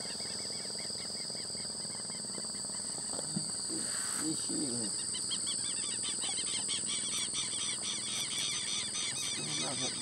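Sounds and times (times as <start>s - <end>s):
insects shrilling: 0.0s - 10.0s
bird chirping: 4.2s - 10.0s.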